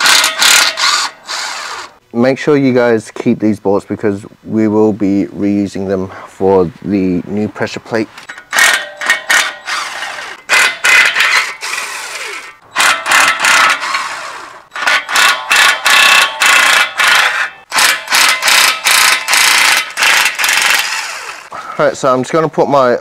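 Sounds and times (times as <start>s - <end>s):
cordless power tool bursts: 0.0s - 2.0s, 8.5s - 21.5s.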